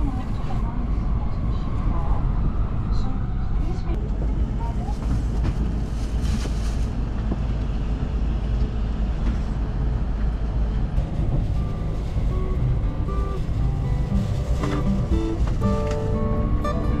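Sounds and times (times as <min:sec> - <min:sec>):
train rumble inside cabin: 0:00.0 - 0:17.0
soft background music: 0:11.0 - 0:17.0.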